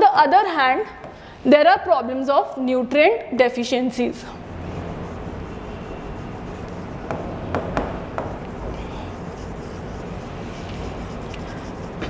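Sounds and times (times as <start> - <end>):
steady low hum: 4.0 - 12.0
stylus scratching on glass: 4.4 - 12.0.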